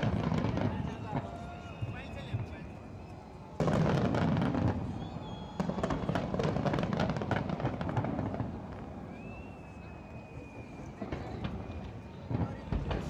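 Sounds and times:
fireworks crackling: 0.0s - 13.0s.

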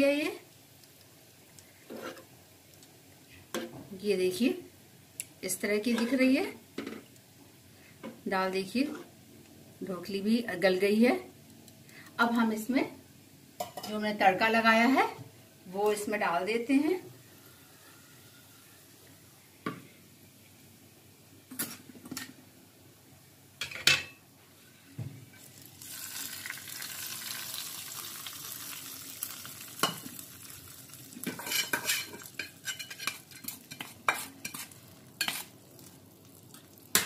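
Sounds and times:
spiced oil sizzling in dal: 0.0s - 19.3s, 24.6s - 37.0s
steel spoon clinking and scraping: 31.3s - 35.5s.

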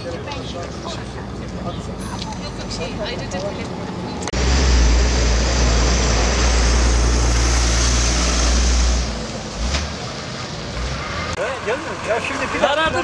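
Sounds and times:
tyre and road noise: 0.0s - 13.0s
dump truck diesel rumble: 4.2s - 13.0s.

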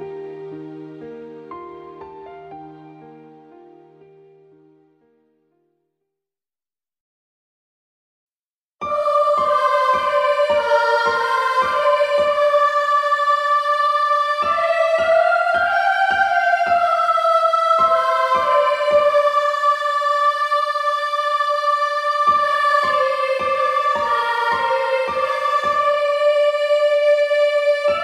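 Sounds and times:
sustained synthesizer melody: 8.8s - 28.0s.

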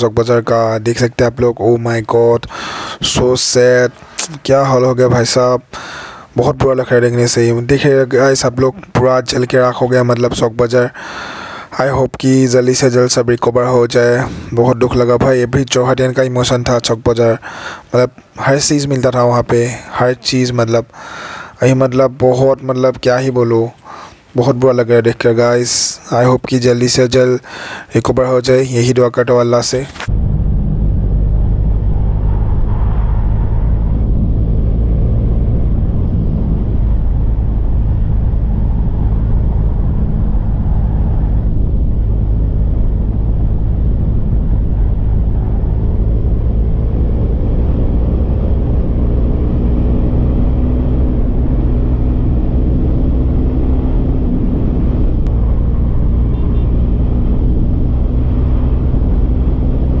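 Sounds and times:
wind rush on microphone: 30.0s - 60.0s.

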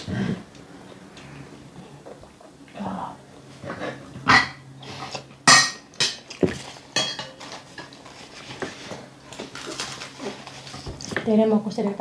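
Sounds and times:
cutlery clinking on plates: 5.5s - 8.0s.

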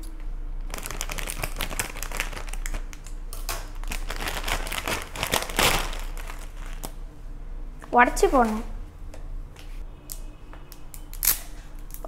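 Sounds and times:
plastic packet crinkling: 0.7s - 7.0s.

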